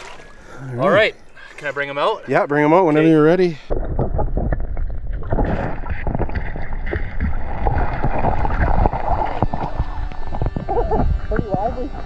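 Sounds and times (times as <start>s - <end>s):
muffled water sloshing underwater: 0.0s - 0.6s, 3.5s - 12.0s.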